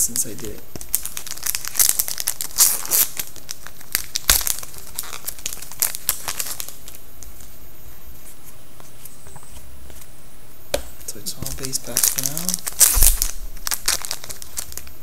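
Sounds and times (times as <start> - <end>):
sharp wrapper crackle: 0.1 - 7.4, 11.0 - 15.0
card pack wrappers crinkling: 0.1 - 7.5, 11.0 - 15.0.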